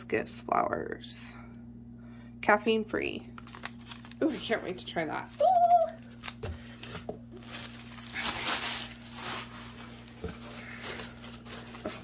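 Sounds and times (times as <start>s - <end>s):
paper rustling and crinkling: 3.4s - 12.0s.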